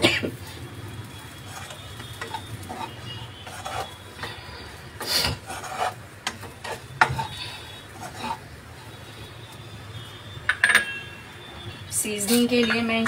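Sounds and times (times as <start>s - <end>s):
spatula scraping wok: 0.3s - 10.2s.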